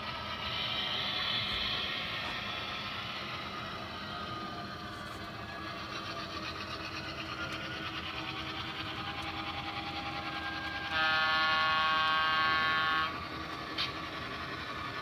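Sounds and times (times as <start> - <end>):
model train clattering on track: 1.2 - 15.0
multi-tone train horn: 10.6 - 13.3.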